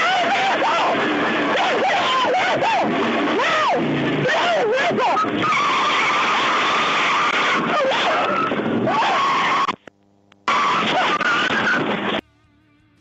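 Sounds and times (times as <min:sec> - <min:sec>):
truck engine running hard: 0:00.0 - 0:09.0
tyres squealing in wheelspin: 0:00.0 - 0:09.7.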